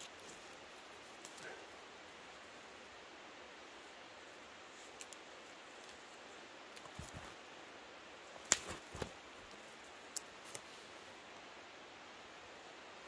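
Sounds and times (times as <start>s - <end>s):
faint hiss: 0.0s - 13.0s
rope handling clicks and knocks: 6.7s - 7.4s, 8.4s - 10.6s.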